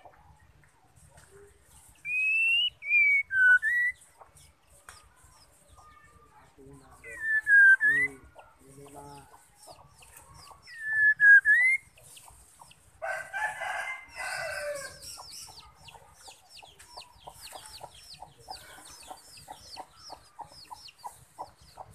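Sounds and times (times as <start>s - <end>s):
bird whistling: 2.0s - 4.0s, 7.1s - 8.2s, 10.7s - 11.9s
rooster crowing: 13.0s - 15.0s.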